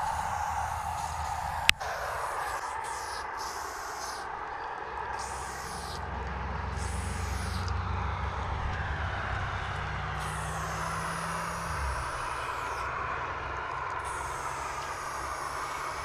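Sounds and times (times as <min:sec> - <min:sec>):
spray paint can hissing: 0:00.0 - 0:04.3, 0:05.2 - 0:06.0, 0:06.7 - 0:07.8, 0:10.1 - 0:12.9, 0:13.9 - 0:16.0
low rumble: 0:00.0 - 0:15.4.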